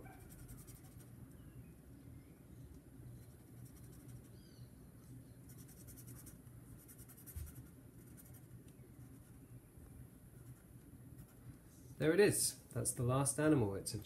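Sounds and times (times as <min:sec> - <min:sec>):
marker scratching on paper: 0:00.0 - 0:01.1, 0:03.2 - 0:04.3, 0:05.5 - 0:09.4.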